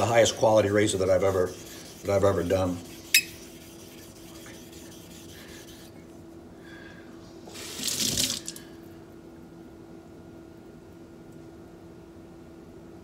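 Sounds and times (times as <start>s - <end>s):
low steady hum: 0.0s - 13.0s
blade scraping sharpening stone: 3.1s - 3.4s.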